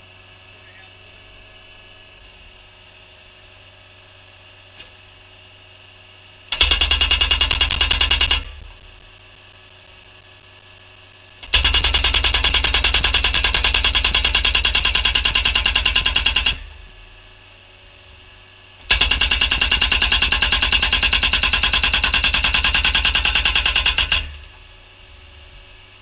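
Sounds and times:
post driver hammering wooden post: 11.6s - 16.6s.

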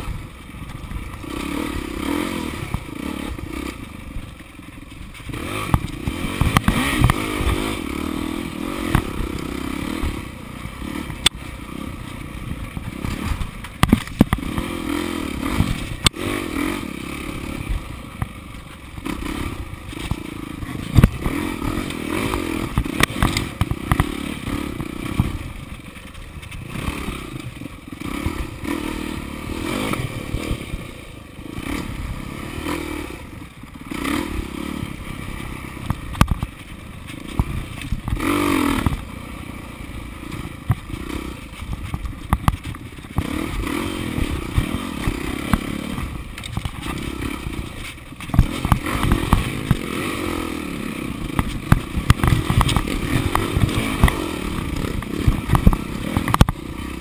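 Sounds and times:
dirt bike engine revving: 0.0s - 57.0s
sharp knocks and clatter: 5.1s - 7.8s, 12.8s - 14.8s, 18.2s - 27.6s, 35.8s - 39.1s, 40.3s - 49.9s, 51.3s - 56.6s.

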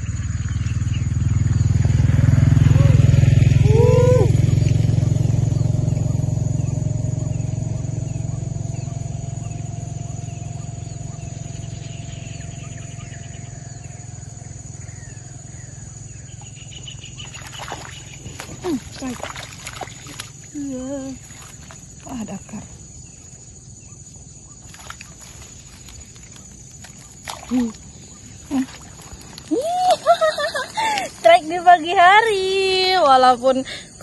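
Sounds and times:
passing vehicle engine drone: 0.0s - 23.5s
fish splash at surface: 17.2s - 20.4s.

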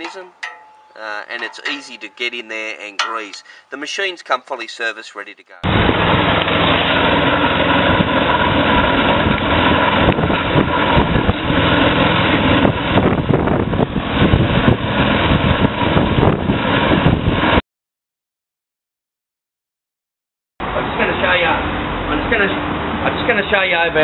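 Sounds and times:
petrol engine running under load: 5.7s - 17.1s.

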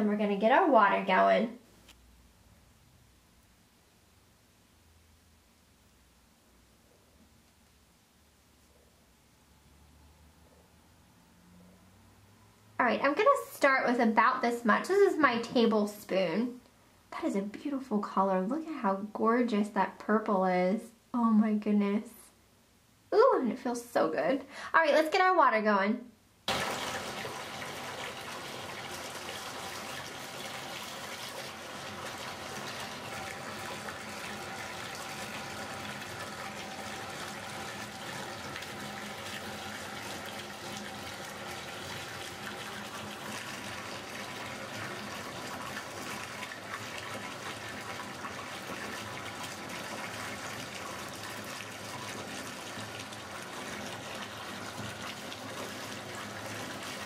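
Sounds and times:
water pouring into bathtub: 26.5s - 57.0s.

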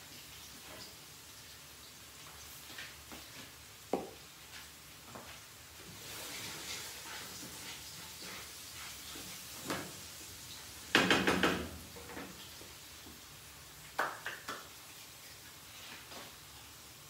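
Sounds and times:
spatula knocking on frying pan: 10.9s - 11.8s
hand claps: 14.0s - 14.7s.

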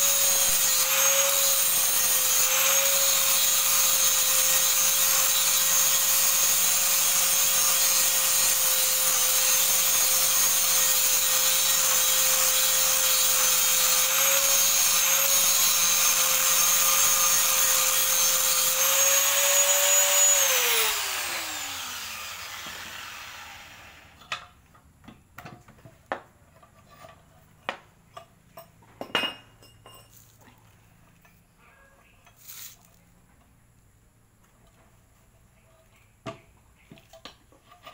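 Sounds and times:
grinder spinning down: 0.0s - 24.2s
angle grinder grinding metal: 0.0s - 24.3s.

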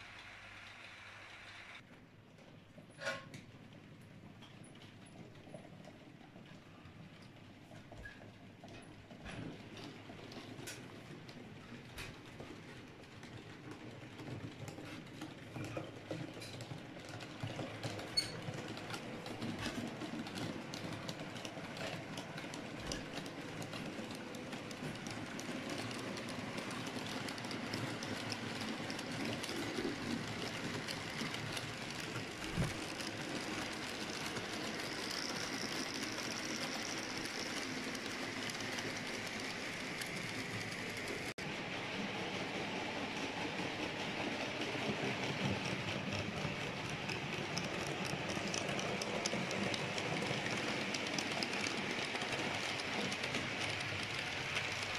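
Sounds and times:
model train wheels clicking: 8.6s - 41.3s, 41.9s - 54.9s
model train running rumble: 16.2s - 54.9s.

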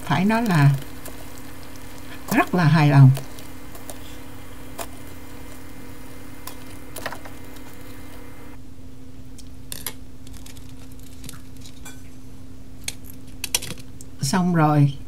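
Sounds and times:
oil sizzling: 0.0s - 8.6s
low steady hum: 0.0s - 13.3s.

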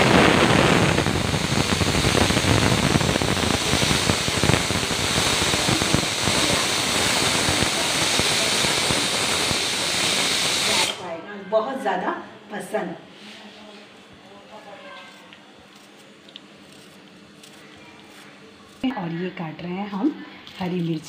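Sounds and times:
steam hissing from a pot: 0.0s - 11.1s.

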